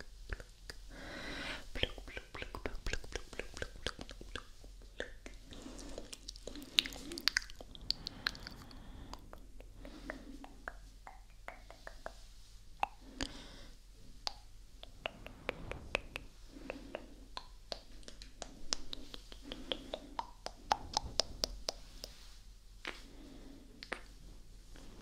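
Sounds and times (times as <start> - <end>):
tongue clicks and lip pops: 0.0 - 0.8, 1.7 - 8.8, 14.2 - 22.2, 23.8 - 24.1.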